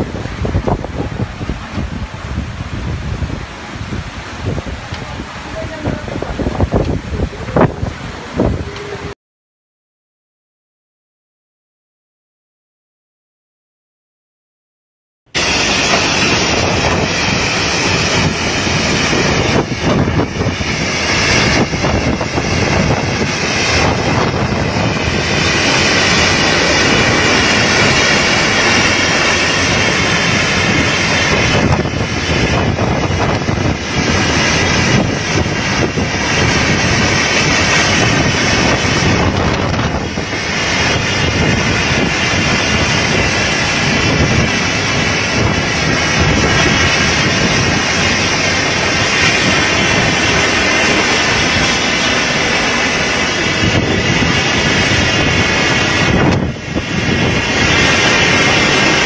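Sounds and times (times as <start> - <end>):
driving rain: 0.0 - 9.2, 15.3 - 59.0
strong wind gusting: 0.0 - 9.2, 15.3 - 59.0.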